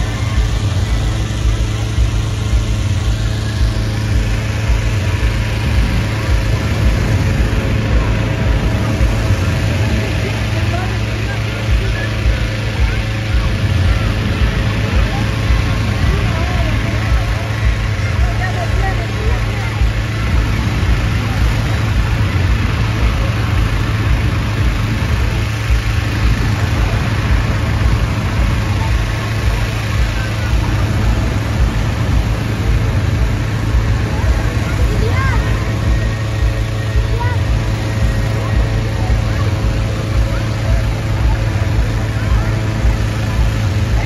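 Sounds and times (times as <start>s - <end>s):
inflator fan engine hum: 0.0s - 44.0s.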